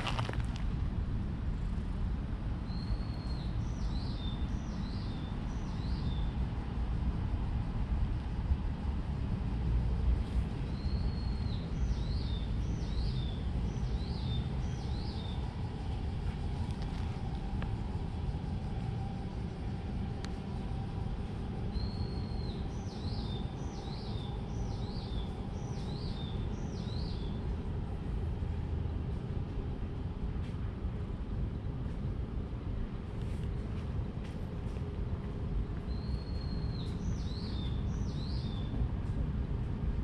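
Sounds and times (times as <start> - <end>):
steady low rumble: 0.0 - 40.0
songbird singing: 2.6 - 6.4, 10.6 - 28.5, 35.7 - 38.9.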